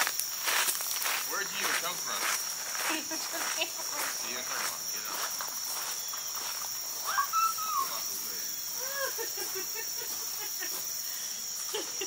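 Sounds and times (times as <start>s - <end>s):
high-pitched insect chorus: 0.0s - 12.0s
short pitched calls: 5.9s - 9.2s.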